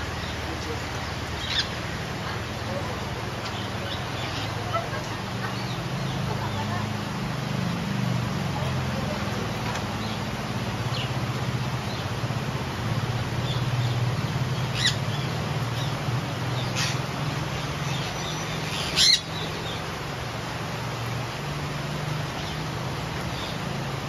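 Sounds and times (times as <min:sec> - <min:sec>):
rain hiss: 0:00.0 - 0:24.0
parakeet squawks: 0:01.4 - 0:01.8, 0:14.7 - 0:15.0, 0:16.6 - 0:17.0, 0:18.7 - 0:19.3.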